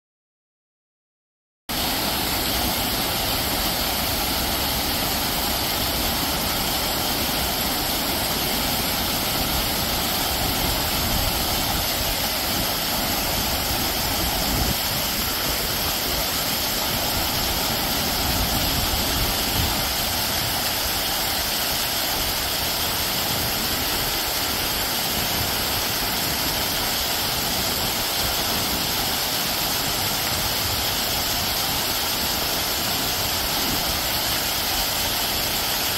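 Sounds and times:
water rushing down waterfall: 1.7s - 35.9s.

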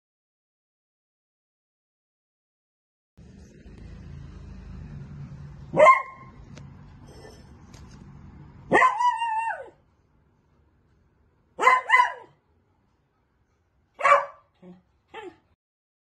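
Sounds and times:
puppy barking: 5.7s - 6.4s, 8.7s - 9.8s, 11.6s - 12.4s, 14.0s - 15.5s.

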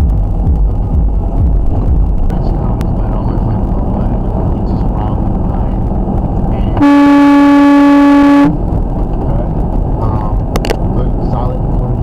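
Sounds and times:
highway road and engine noise: 0.0s - 12.0s
truck horn blast: 6.8s - 8.7s.

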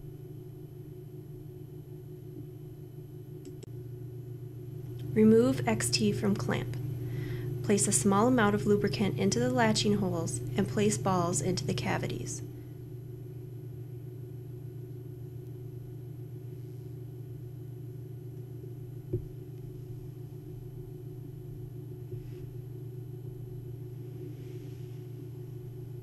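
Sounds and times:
low electrical hum: 0.0s - 26.0s
brief knock: 19.1s - 19.3s.

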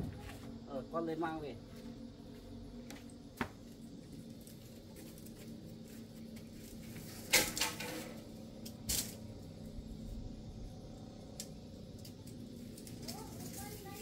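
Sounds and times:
low hum: 0.0s - 13.7s
objects clattering: 7.2s - 8.2s.

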